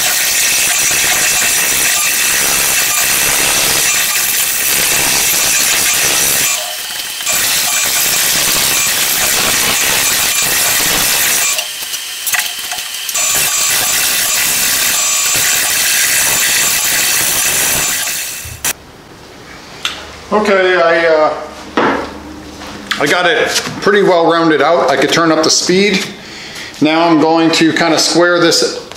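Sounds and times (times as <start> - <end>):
lathe running: 0.0 - 18.8.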